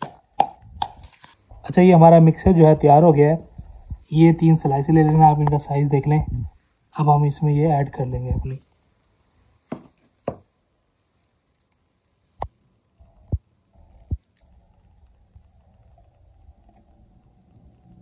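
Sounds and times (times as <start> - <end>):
faint low hum: 10.6 - 18.0.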